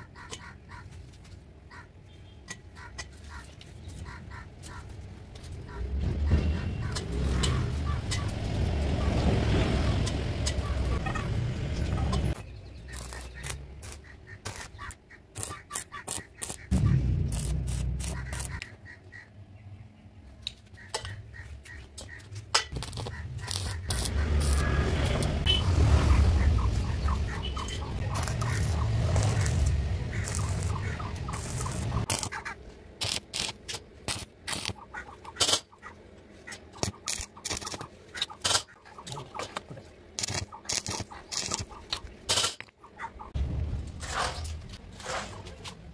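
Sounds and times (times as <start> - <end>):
welding arc crackling: 12.9 - 18.6, 22.7 - 35.6, 36.8 - 38.6, 40.2 - 42.6
low hum: 16.7 - 18.6.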